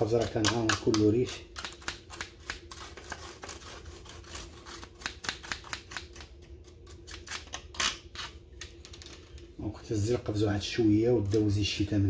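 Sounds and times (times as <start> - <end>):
toothbrush scratching cage wires: 0.0 - 7.6.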